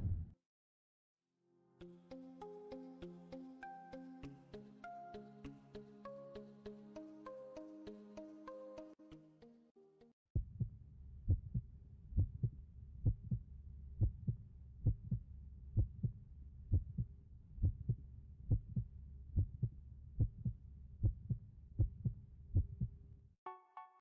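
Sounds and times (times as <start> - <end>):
heartbeat thumps: 10.4 - 10.7, 11.3 - 13.4, 14.0 - 15.2, 15.8 - 23.0.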